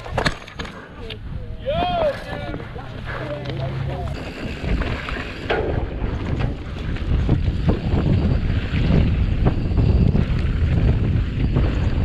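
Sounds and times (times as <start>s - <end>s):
bike knocks and rattles: 0.0s - 0.9s, 4.1s - 12.0s
wind buffeting microphone: 1.0s - 12.0s.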